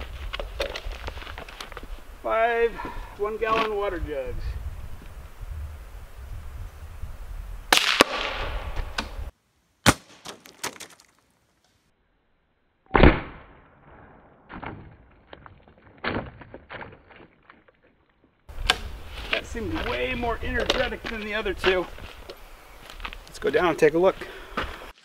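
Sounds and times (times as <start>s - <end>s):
rifle shot: 7.7s - 8.7s, 9.8s - 10.4s, 12.9s - 14.6s
bullet hitting jug: 9.8s - 11.1s.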